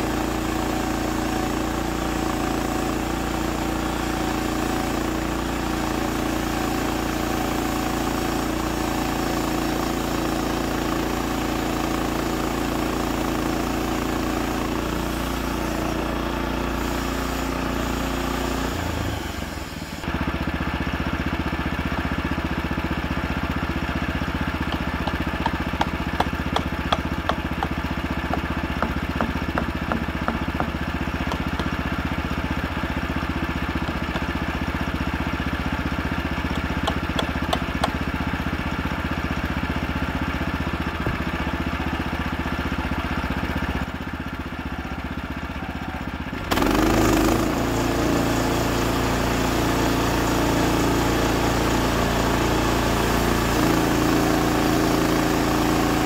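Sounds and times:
gas engine idling: 0:22.5 - 0:42.3
hammer tapping wedges: 0:24.7 - 0:31.9, 0:33.8 - 0:34.4, 0:36.5 - 0:38.0.

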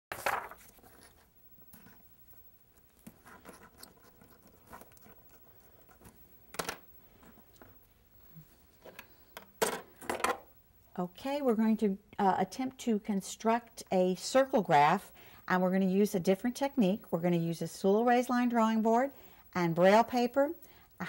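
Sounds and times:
paper rustling: 0:00.1 - 0:06.2.

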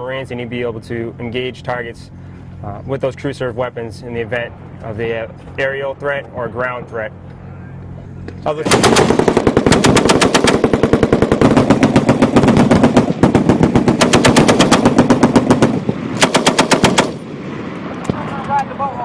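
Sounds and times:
machine gun firing bursts: 0:08.6 - 0:17.3.

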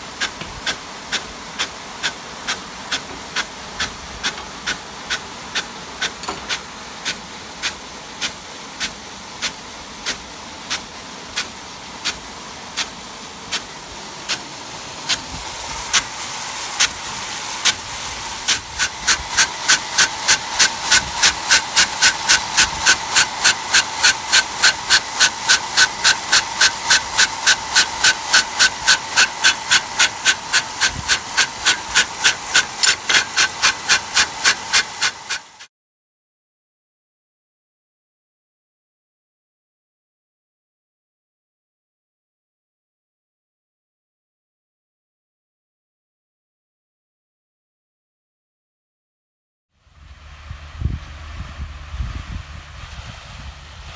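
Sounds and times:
water jet hissing: 0:00.0 - 0:35.7
sprinkler arm clacking: 0:00.1 - 0:35.7.

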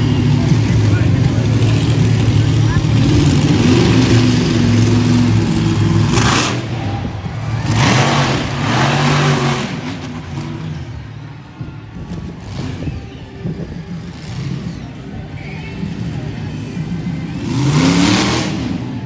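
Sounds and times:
truck engine revving hard: 0:00.0 - 0:11.2, 0:12.0 - 0:15.0, 0:15.8 - 0:19.0.

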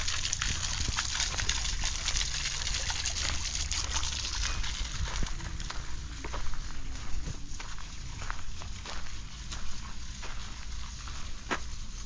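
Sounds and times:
fountain water splashing: 0:00.0 - 0:12.0.

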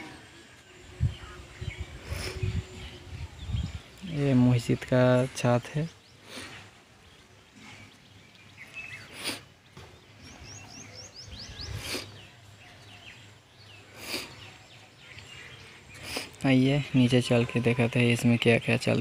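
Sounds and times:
birds chirping: 0:00.0 - 0:19.0
faint background noise: 0:00.0 - 0:19.0.

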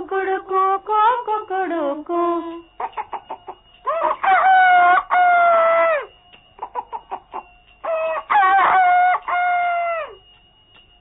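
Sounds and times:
rooster crowing: 0:02.8 - 0:10.3.

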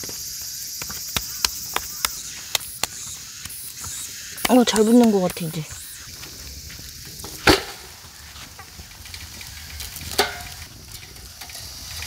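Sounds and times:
wet mud patted by hand: 0:00.8 - 0:05.5.

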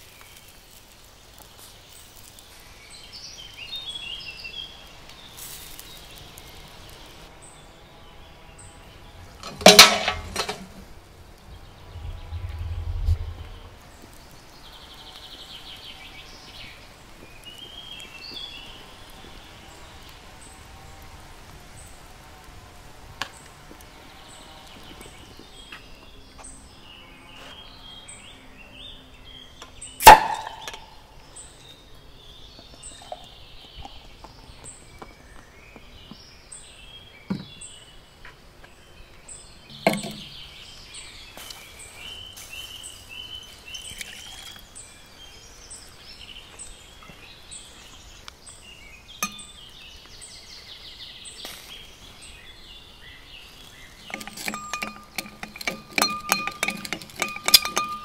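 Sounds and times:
small birds chirping: 0:00.0 - 0:58.0.

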